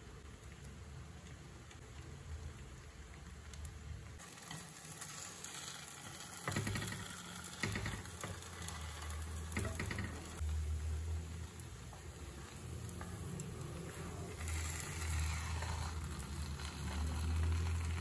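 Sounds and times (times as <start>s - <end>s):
pancake frying: 0.0s - 18.0s
chopsticks scraping a pan: 4.3s - 10.4s, 12.3s - 18.0s.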